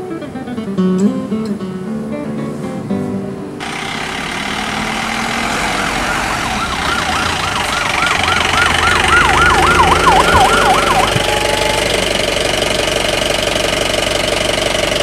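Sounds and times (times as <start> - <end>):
police siren yelping: 3.6 - 12.9
engine running: 3.6 - 15.0.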